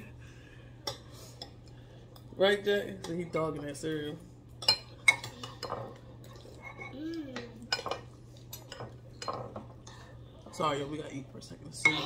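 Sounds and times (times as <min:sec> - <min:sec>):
spoons clinking on bowls: 0:04.6 - 0:06.0, 0:11.7 - 0:12.0.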